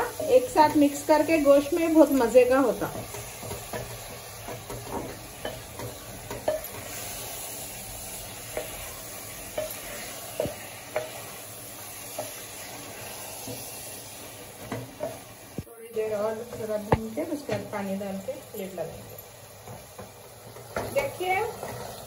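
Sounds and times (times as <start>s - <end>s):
spatula scraping and tapping pot: 0.0s - 7.4s, 8.4s - 13.8s, 14.5s - 15.3s, 19.6s - 22.0s
food sizzling in oil: 0.0s - 22.0s.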